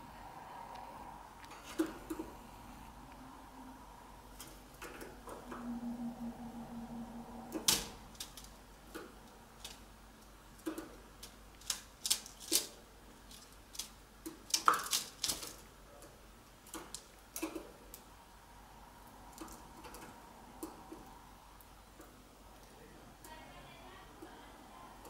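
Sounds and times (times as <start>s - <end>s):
birds hopping and pecking in cage: 1.4s - 2.4s, 7.3s - 18.1s, 19.0s - 23.4s.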